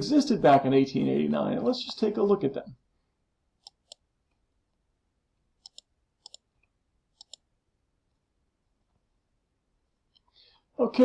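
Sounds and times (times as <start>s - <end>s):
computer mouse clicking: 3.6s - 4.0s, 5.6s - 7.4s.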